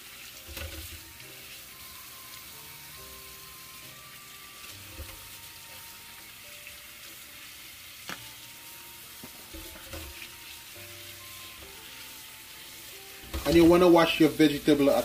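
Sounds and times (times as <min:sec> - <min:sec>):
tap water splashing into sink: 0:00.0 - 0:01.6, 0:04.5 - 0:05.5, 0:09.2 - 0:10.6, 0:13.2 - 0:13.9.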